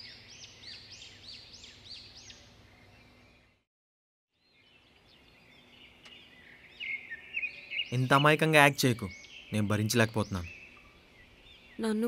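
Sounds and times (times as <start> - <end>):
faint bird chirps: 4.4 - 12.0.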